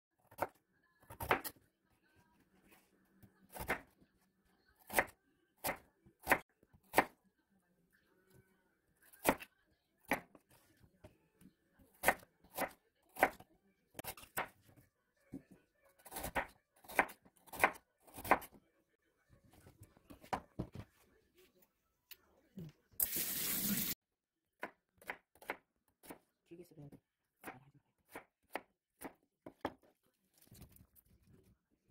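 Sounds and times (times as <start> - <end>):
knife chopping on plastic board: 16.0 - 18.6, 24.6 - 26.3, 27.4 - 29.9.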